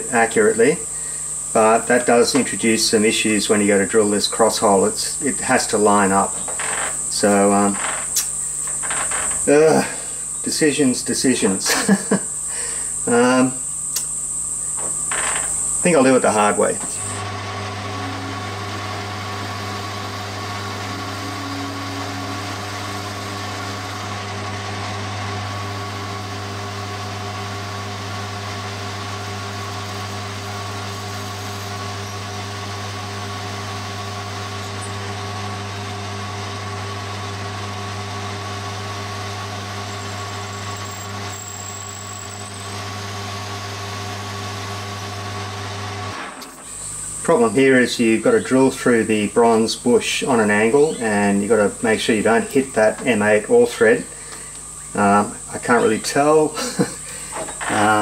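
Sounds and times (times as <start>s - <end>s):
drilling whine: 0.0s - 58.0s
metal lathe humming: 0.0s - 58.0s.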